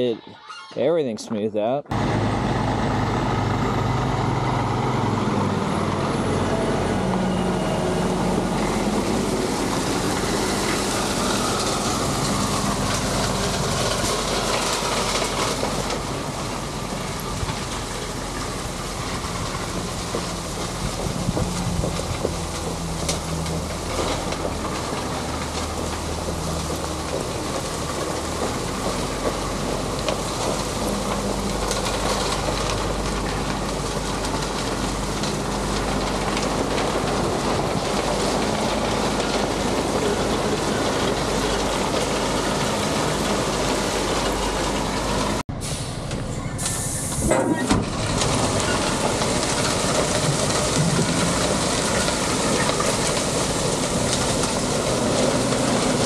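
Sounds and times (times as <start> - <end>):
loud rushing noise: 1.9 - 15.6
diesel machinery running: 1.9 - 56.0.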